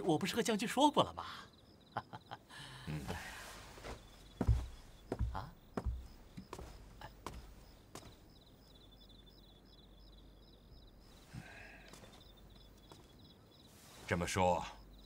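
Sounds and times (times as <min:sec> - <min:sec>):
crickets chirping: 0:00.0 - 0:15.0
soft footsteps: 0:03.3 - 0:08.4, 0:11.1 - 0:15.0.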